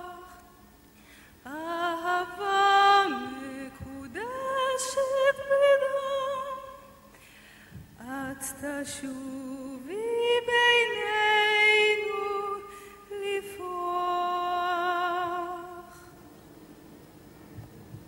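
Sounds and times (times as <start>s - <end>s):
person singing slow song: 0.0s - 16.2s.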